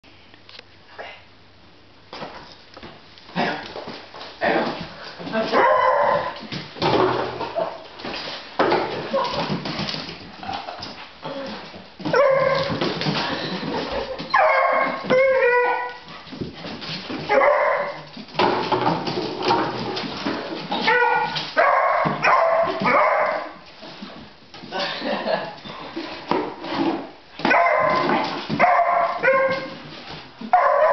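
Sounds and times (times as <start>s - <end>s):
dog barking and yelping: 5.6s - 6.4s, 12.1s - 12.8s, 14.3s - 16.1s, 17.3s - 18.1s, 20.8s - 23.6s, 27.5s - 29.8s, 30.5s - 30.9s.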